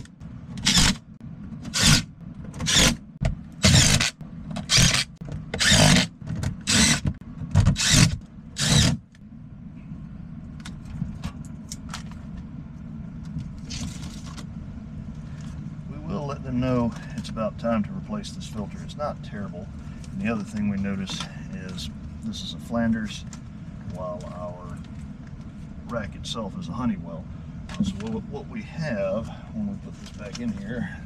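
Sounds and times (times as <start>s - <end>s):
air handler humming: 0.0s - 31.0s
rustling and scraping: 13.3s - 14.5s.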